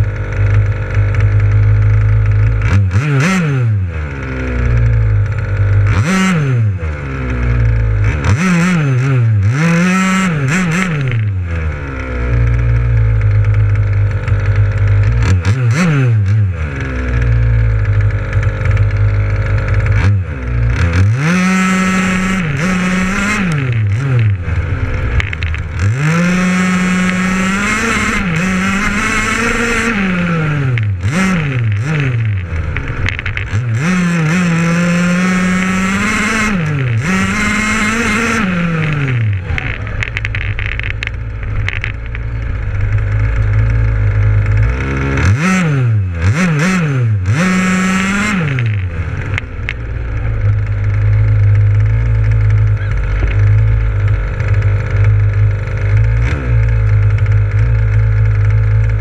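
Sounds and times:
small two-stroke engine revving: 0.0 - 59.0.

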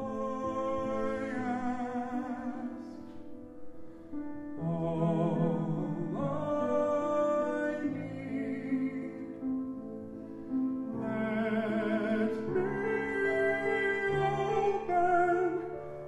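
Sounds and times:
piano accompaniment: 0.0 - 16.0.

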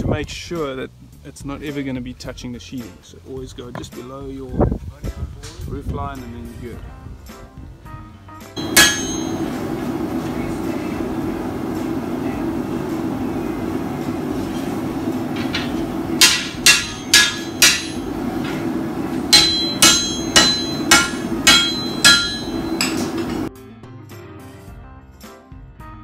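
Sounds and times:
hammer striking steel on anvil: 8.6 - 23.5
steady drone: 8.6 - 23.5.

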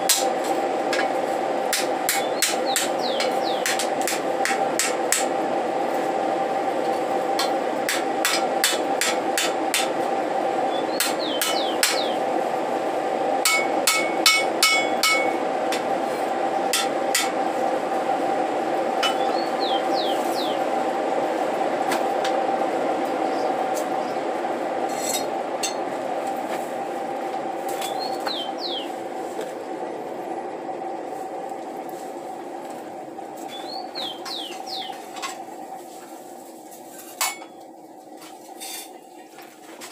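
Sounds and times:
steady hum: 0.0 - 39.9
hammer striking metal on anvil: 13.4 - 15.3.

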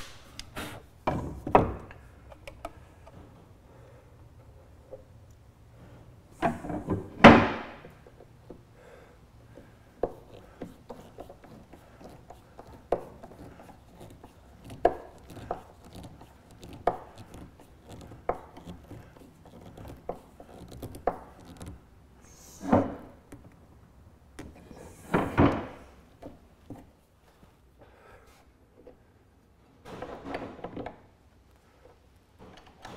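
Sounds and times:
screwdriver clicking and scraping: 10.0 - 21.8.

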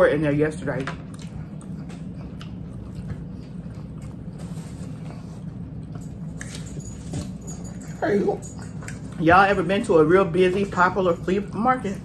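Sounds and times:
steady low hum: 0.0 - 12.0
quiet chewing: 0.8 - 9.5.

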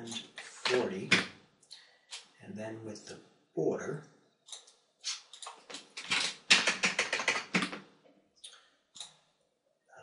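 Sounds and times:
typing on keyboard: 5.4 - 7.8.

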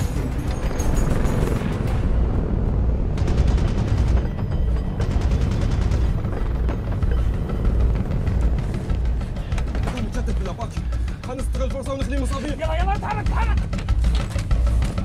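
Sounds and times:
heavy low rumble: 0.0 - 11.0
dramatic music score: 0.0 - 15.0.

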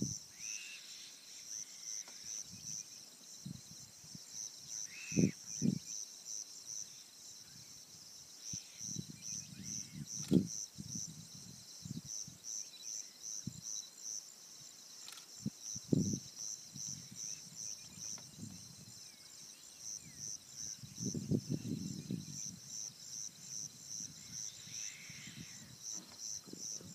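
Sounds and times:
insects trilling: 0.0 - 26.9
wind thumps on microphone: 5.2 - 5.8, 8.9 - 12.2, 15.4 - 19.0, 20.8 - 22.8, 25.3 - 26.9.

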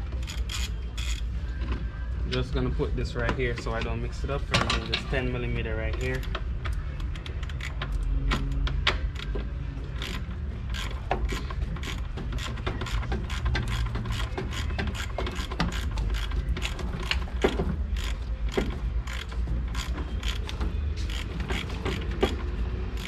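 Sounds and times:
socket ratchet clicking: 10.0 - 23.0.

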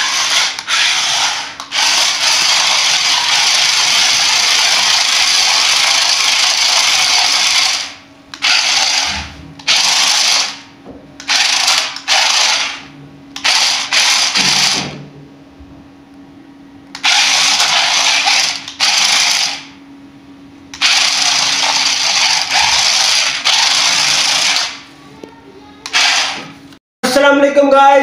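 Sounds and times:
toy car motors whirring: 0.0 - 10.6, 11.2 - 14.8, 17.0 - 19.7, 20.8 - 24.8, 25.8 - 26.6.

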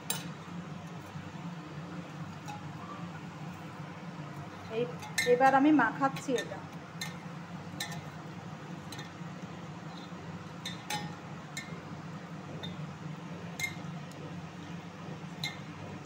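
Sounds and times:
steady low hum: 0.0 - 16.0
hand clinking metal bowl: 4.9 - 5.6.

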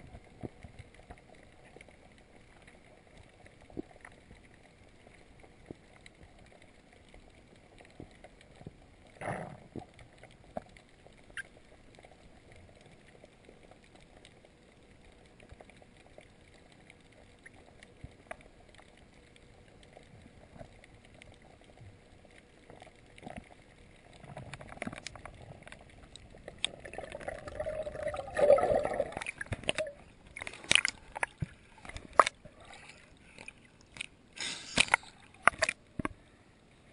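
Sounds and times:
faint underwater hiss: 0.0 - 36.9
underwater clicks: 15.0 - 36.2
water sloshing and splashing: 15.4 - 36.3.

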